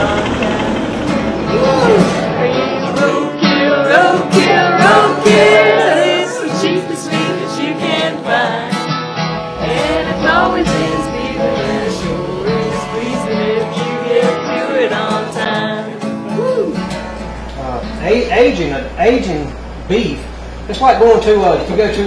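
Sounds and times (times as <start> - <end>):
person singing: 0.0 - 8.9, 9.6 - 16.8
guitar accompaniment: 0.0 - 22.0.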